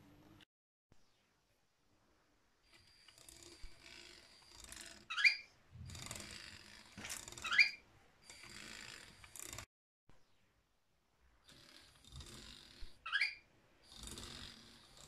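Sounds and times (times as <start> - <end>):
motor and gears whirring: 2.7 - 9.7
short rising squeak: 5.1 - 5.5, 7.4 - 7.8, 13.1 - 13.4.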